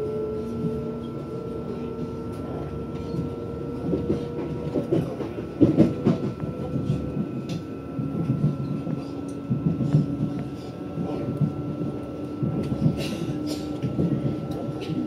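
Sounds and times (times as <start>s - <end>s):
train interior rumble: 0.0s - 15.0s.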